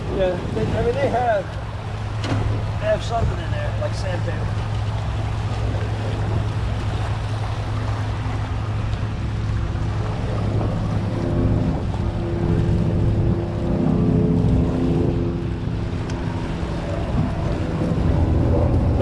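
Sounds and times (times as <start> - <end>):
boat motor running: 0.0 - 19.0
churning water: 0.0 - 19.0
higher engine tone: 0.0 - 19.0
wind noise: 5.1 - 19.0.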